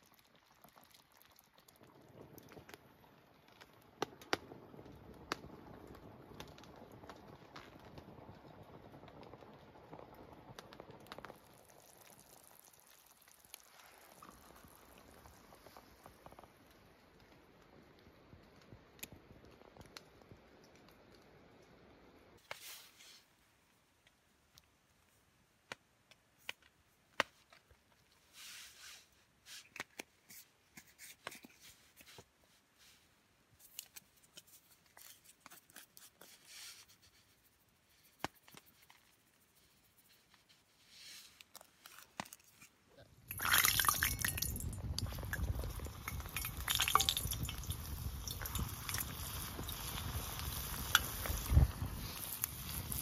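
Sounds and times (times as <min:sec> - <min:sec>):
dough sizzling in hot oil: 0:00.0 - 0:20.4, 0:43.2 - 0:53.0.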